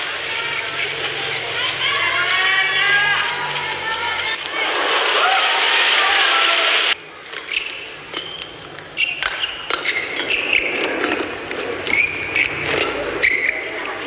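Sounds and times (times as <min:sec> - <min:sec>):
arena crowd noise: 0:00.0 - 0:14.0
shoes squeaking on court: 0:00.2 - 0:01.8, 0:07.2 - 0:14.0
racket striking shuttlecock: 0:07.4 - 0:12.8.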